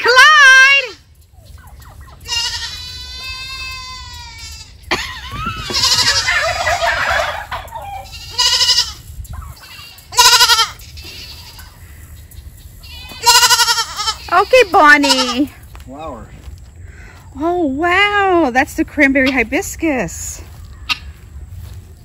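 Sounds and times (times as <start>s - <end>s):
goat bleating loudly: 2.3s - 4.8s, 5.6s - 6.3s, 7.9s - 9.0s, 9.6s - 11.6s, 12.8s - 15.5s.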